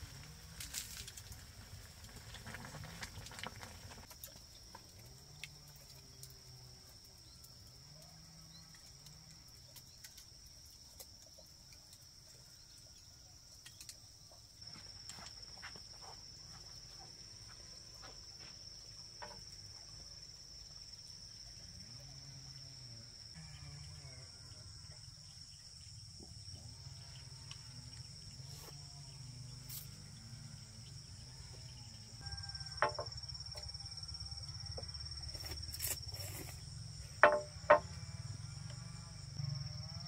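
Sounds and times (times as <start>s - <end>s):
insects trilling: 0.0s - 40.0s
faint wavering animal calls: 23.4s - 25.2s.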